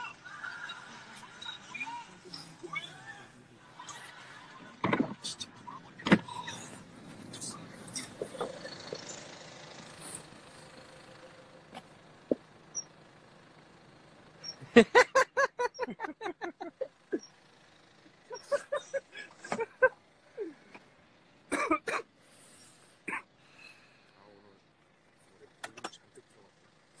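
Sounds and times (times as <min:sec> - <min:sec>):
men laughing: 0:08.0 - 0:09.0, 0:14.6 - 0:20.7.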